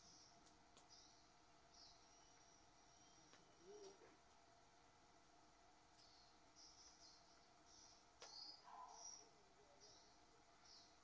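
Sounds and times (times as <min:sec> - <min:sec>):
thin steady high tone: 0:00.0 - 0:04.2, 0:06.0 - 0:11.0.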